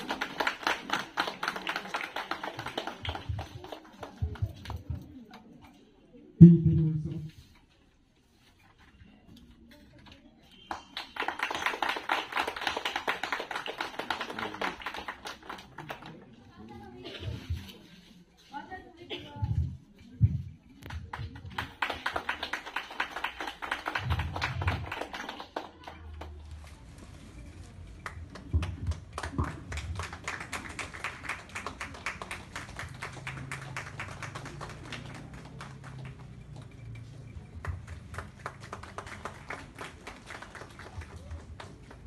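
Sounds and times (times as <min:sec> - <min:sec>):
audience clapping: 0:00.0 - 0:04.9, 0:10.5 - 0:16.5, 0:20.8 - 0:26.4, 0:28.0 - 0:42.0.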